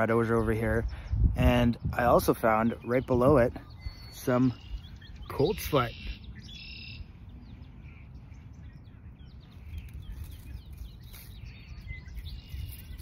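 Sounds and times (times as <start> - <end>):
small birds chirping: 0.0 - 13.0
low outdoor background rumble: 6.2 - 13.0.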